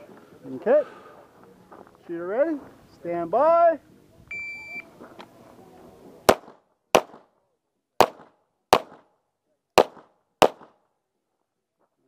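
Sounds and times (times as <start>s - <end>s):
pistol shots with echo: 6.3s - 7.4s, 8.0s - 9.2s, 9.8s - 10.8s.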